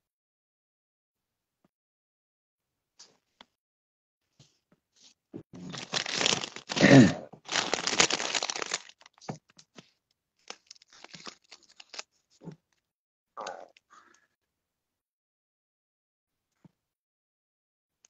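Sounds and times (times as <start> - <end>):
plastic bag crinkling: 5.6 - 9.3, 10.4 - 12.1.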